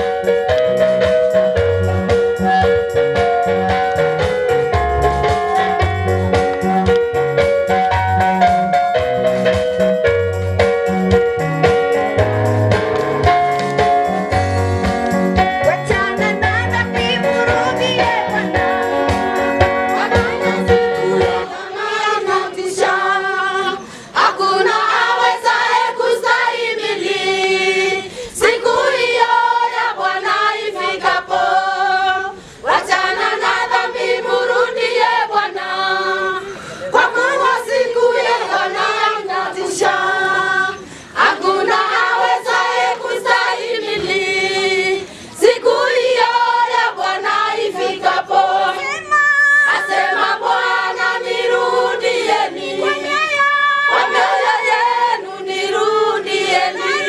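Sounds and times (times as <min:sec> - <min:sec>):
low beat backing: 0:00.0 - 0:22.9
women's choir singing gospel: 0:13.2 - 0:57.0.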